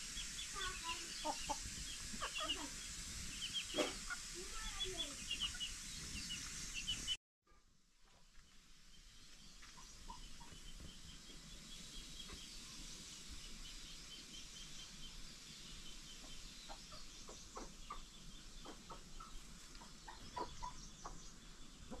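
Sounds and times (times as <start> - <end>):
chickens clucking: 0.0 - 7.1, 9.6 - 11.5, 16.0 - 22.0
rapid high chirping trill: 0.0 - 7.2.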